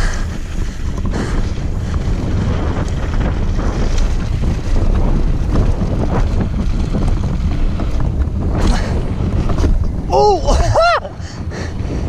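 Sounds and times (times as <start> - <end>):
tyre rumble over gravel: 0.0 - 10.1
bike knocks and rattles: 0.0 - 12.0
wind buffeting microphone: 0.0 - 12.0.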